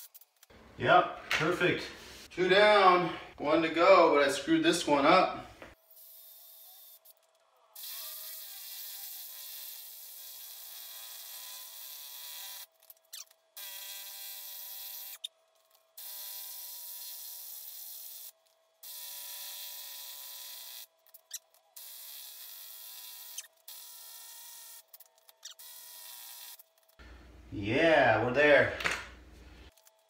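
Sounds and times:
drill boring into concrete: 7.8 - 12.7, 13.6 - 15.3, 16.0 - 20.9.

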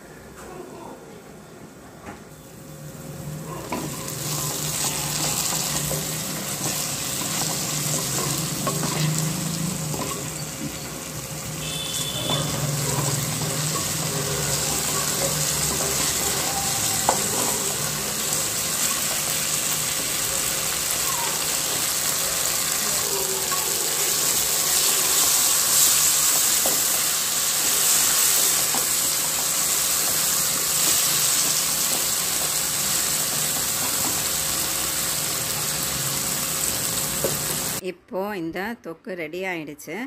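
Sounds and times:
onions sizzling in oil: 2.9 - 37.8
wooden spatula scraping a pan: 3.6 - 11.0.

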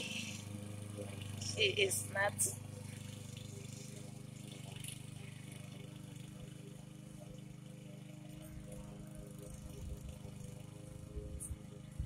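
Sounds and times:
lawn mower engine running: 0.0 - 12.0.

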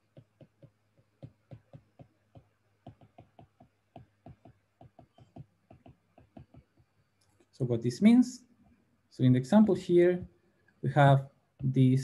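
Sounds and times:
stylus tapping tablet screen: 0.0 - 7.0.

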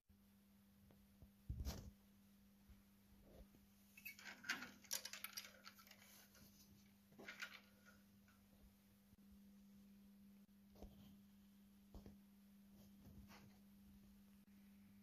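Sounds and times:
wire handling clicks and rustles: 3.9 - 8.6.

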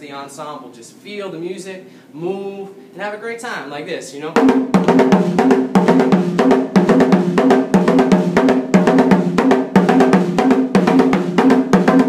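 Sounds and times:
steel band drums groove: 4.2 - 12.0.

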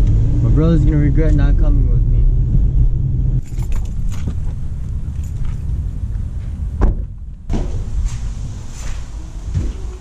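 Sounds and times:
moving car rumble: 0.0 - 10.0
thump: 6.8 - 8.2.

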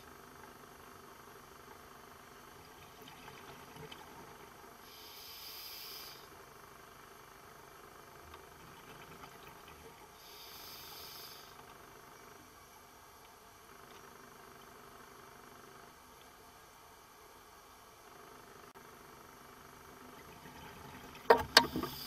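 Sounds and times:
faint steady hiss: 0.0 - 22.0
diver breathing through regulator: 10.2 - 11.6.

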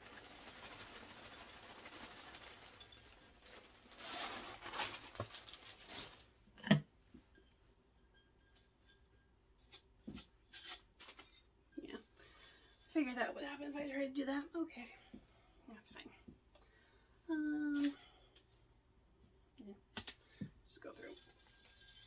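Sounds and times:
potting mix rustling and pattering: 0.0 - 11.9, 20.7 - 22.0.

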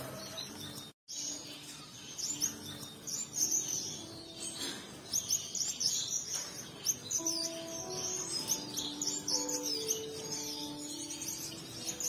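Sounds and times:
birds chirping: 0.0 - 12.0.

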